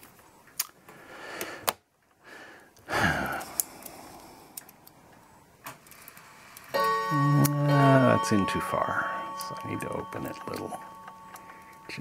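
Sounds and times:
person sighing: 2.9 - 4.5.

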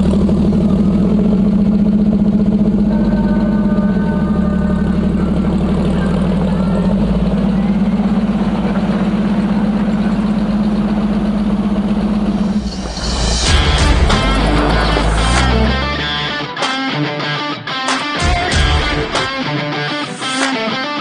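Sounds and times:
car engine droning at low revs: 0.0 - 16.4.

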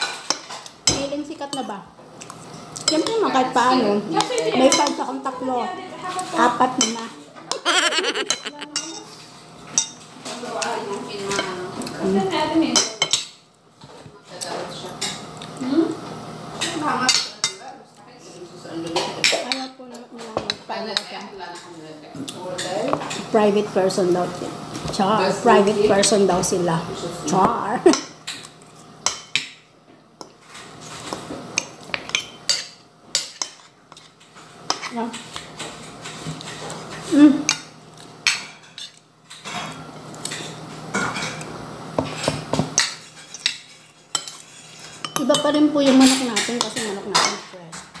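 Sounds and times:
cutlery clinking on a plate: 37.5 - 48.0.

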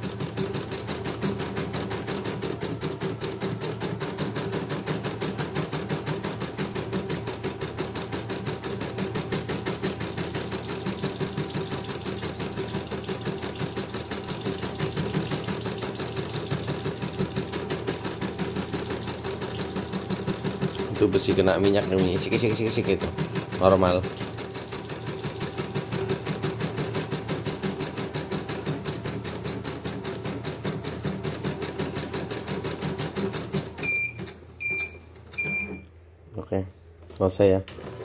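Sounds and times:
embroidery machine stitching: 0.0 - 33.8
motor hum: 8.5 - 26.3.

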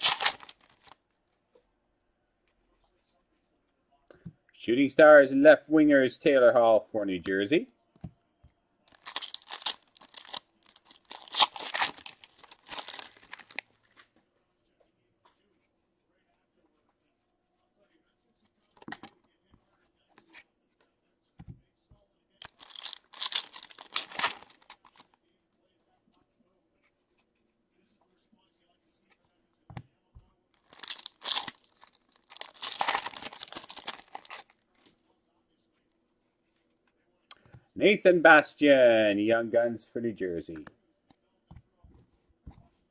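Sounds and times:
foil wrapper tearing and crinkling: 0.0 - 1.0, 8.9 - 13.7, 22.4 - 25.1, 30.6 - 34.5.

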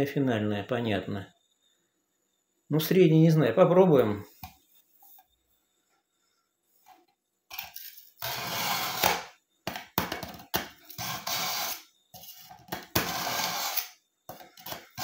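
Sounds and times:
knife rasping through sharpener: 7.8 - 9.2, 10.9 - 15.0.

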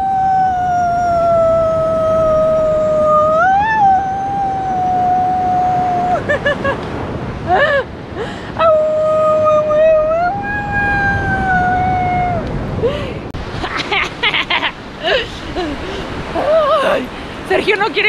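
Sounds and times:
dog howling: 8.6 - 12.4.

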